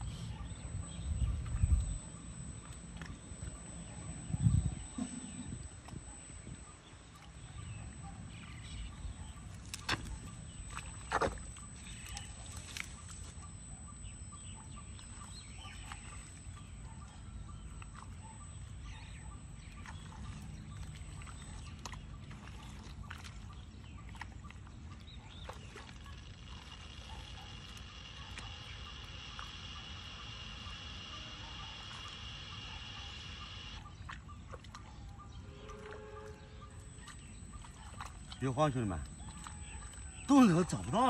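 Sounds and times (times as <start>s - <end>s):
steady low rumble: 0.0s - 22.4s.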